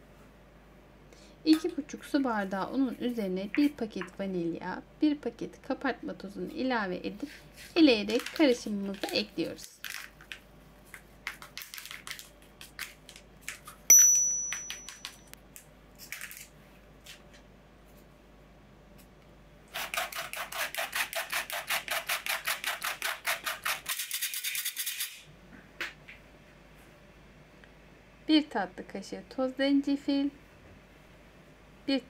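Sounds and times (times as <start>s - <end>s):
sharp tap with high ring: 13.9s - 15.3s.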